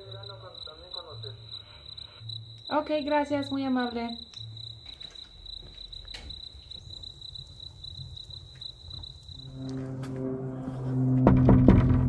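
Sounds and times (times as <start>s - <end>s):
cricket chirping: 0.0s - 10.4s
wood fire crackling: 4.2s - 9.9s.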